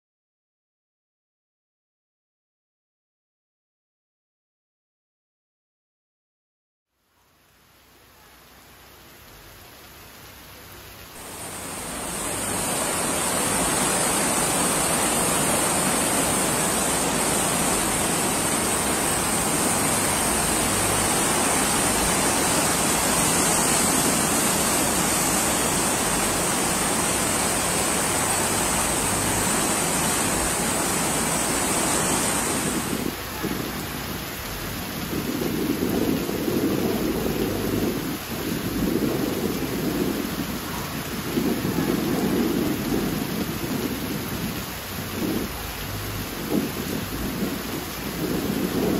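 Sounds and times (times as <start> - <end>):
floodwater rushing: 7.5 - 48.9
shallow water flowing: 7.8 - 48.9.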